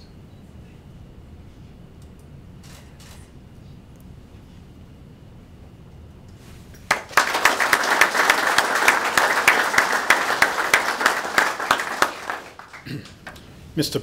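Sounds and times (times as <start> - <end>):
audience applause: 6.9 - 13.4.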